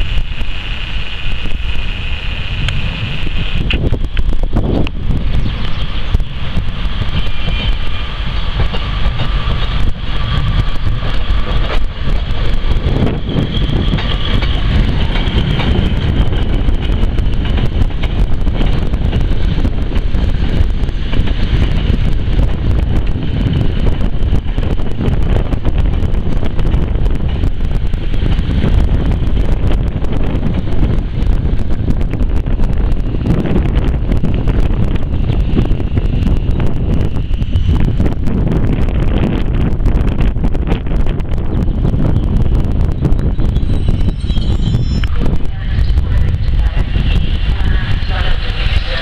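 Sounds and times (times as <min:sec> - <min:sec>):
diesel train arriving: 0:00.0 - 0:49.0
wind buffeting microphone: 0:00.0 - 0:49.0.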